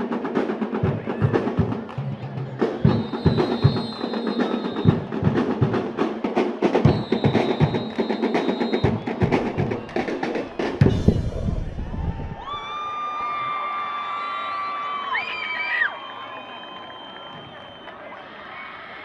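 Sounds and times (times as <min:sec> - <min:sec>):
snare and bass drums playing: 0:00.0 - 0:12.4
drum roll: 0:00.0 - 0:12.7.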